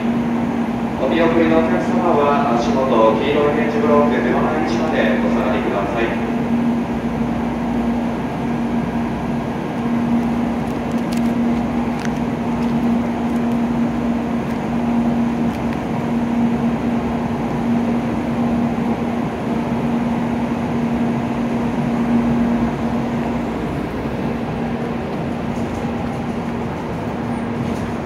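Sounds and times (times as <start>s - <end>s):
station background noise: 0.0s - 28.0s
train equipment humming: 0.0s - 28.0s.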